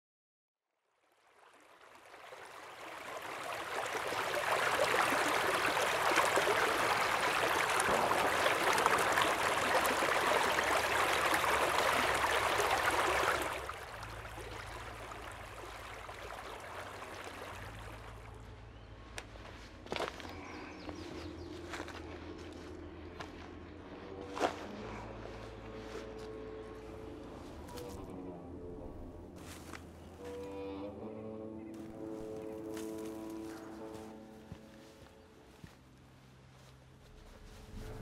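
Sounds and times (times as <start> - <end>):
stream running: 0.9 - 18.6.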